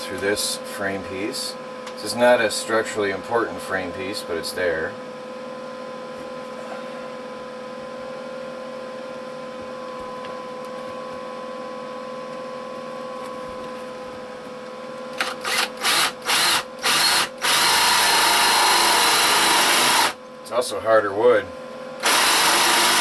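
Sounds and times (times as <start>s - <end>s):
cordless drill boring wood: 15.2s - 20.2s, 22.0s - 23.0s.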